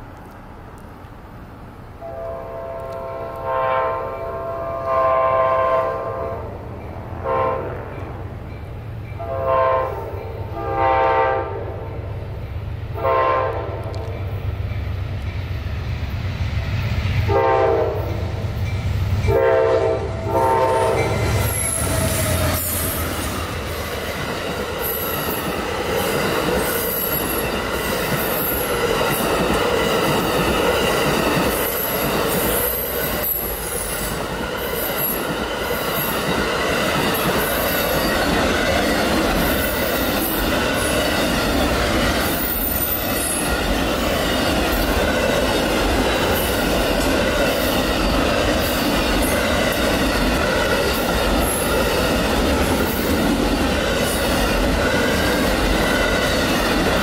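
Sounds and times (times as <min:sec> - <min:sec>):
train horn blasts: 0:02.0 - 0:06.6, 0:07.2 - 0:08.2, 0:09.2 - 0:11.9, 0:13.0 - 0:14.1, 0:17.3 - 0:18.4, 0:19.2 - 0:22.7
train cars clattering over rails: 0:20.4 - 0:57.0.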